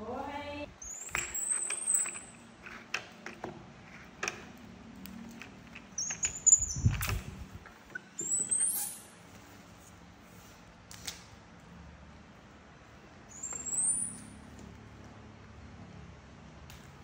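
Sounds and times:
high-pitched monkey squeals: 6.0s - 7.0s, 7.9s - 9.2s, 13.3s - 14.3s.

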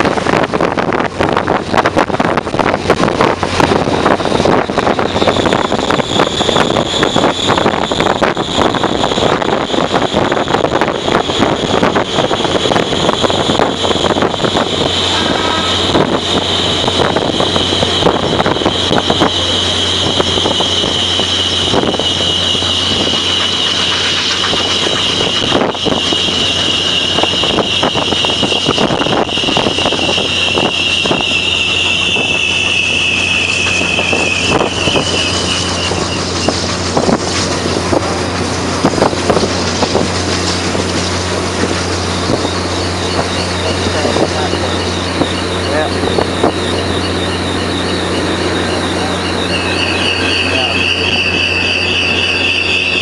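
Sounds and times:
train rumble: 0.0s - 53.0s
wheels clicking on rails: 0.0s - 53.0s
wind on microphone: 0.0s - 53.0s
high metallic train squeal: 1.3s - 53.0s.

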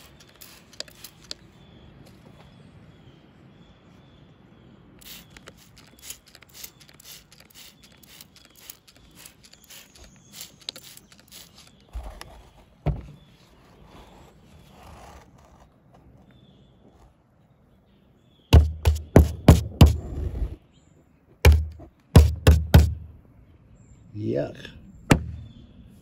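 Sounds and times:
heavy thumps: 18.6s - 20.2s, 21.4s - 23.1s, 25.1s - 25.5s.

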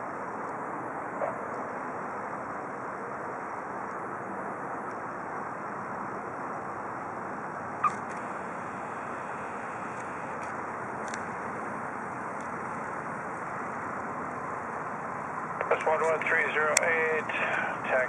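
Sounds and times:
light aircraft engine idling: 7.2s - 18.0s.

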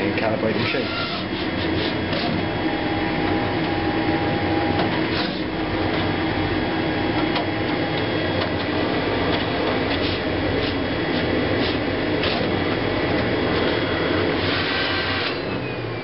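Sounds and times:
printer mechanism steady tone: 0.0s - 16.0s.

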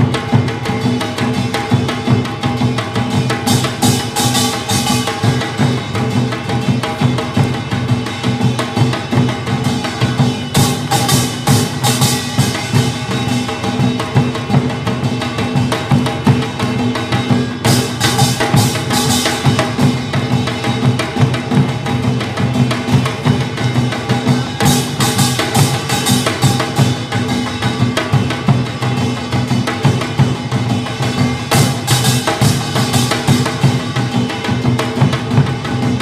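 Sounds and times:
drums beating fast rhythm: 0.0s - 36.0s.

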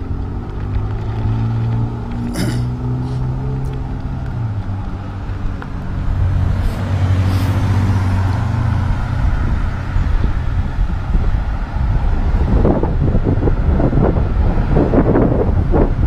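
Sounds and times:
car passing: 0.0s - 16.0s
road and wind noise: 0.0s - 16.0s.

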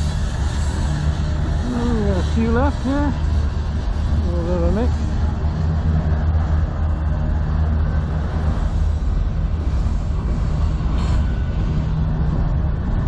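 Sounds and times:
steel wheels rumbling on rail: 0.0s - 13.0s
train car clank: 8.3s - 12.7s.

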